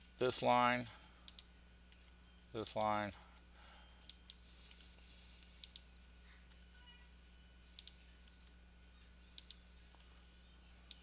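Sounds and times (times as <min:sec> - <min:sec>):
faint low hum: 0:00.0 - 0:11.0
computer mouse clicking: 0:04.1 - 0:05.9, 0:07.7 - 0:08.6, 0:09.3 - 0:09.6.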